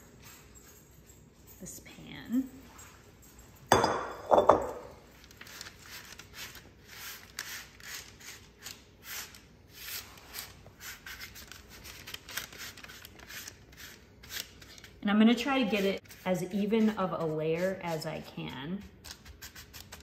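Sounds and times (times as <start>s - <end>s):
spatula scraping on paper: 5.4s - 20.0s.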